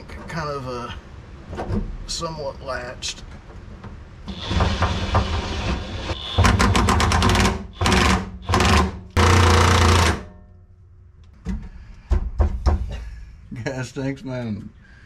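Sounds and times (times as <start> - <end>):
impact wrench hammering rattle: 6.4 - 10.5.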